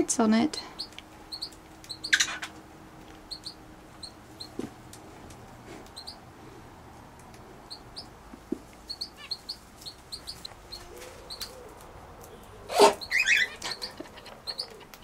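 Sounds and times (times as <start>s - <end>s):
small birds chirping: 0.4s - 6.3s, 7.2s - 15.0s.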